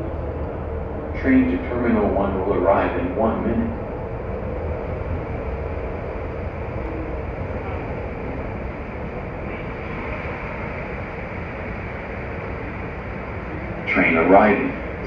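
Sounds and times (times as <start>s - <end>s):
background rumble and hiss: 0.0s - 15.0s.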